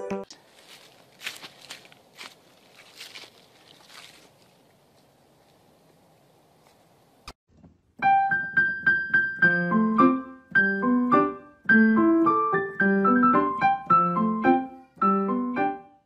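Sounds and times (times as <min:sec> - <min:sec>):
bouncy piano melody: 0:08.0 - 0:16.0.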